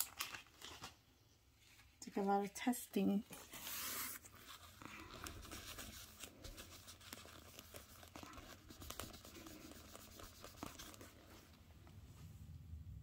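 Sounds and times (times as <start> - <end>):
cloth rubbing on stone: 3.4 - 11.3.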